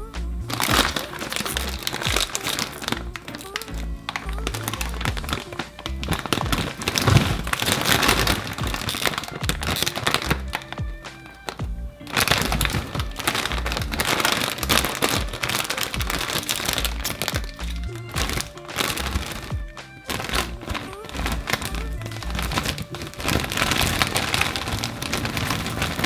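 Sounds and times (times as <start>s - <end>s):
background music: 0.0s - 26.0s
plastic snack bag crinkling: 0.0s - 26.0s.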